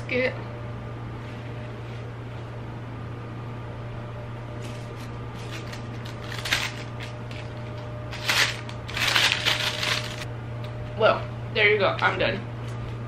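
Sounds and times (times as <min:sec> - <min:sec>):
paper bag crinkling: 0:05.4 - 0:10.3.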